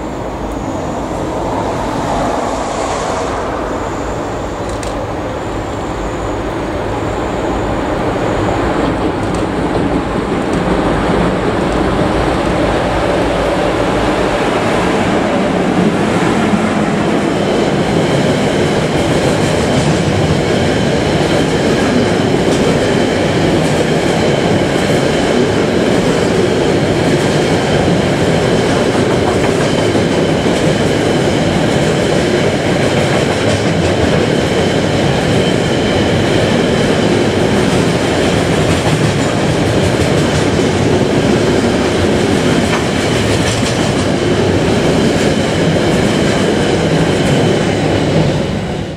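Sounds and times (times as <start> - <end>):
thin high whine: 0.0 - 8.6
freight train rumble: 0.0 - 48.9.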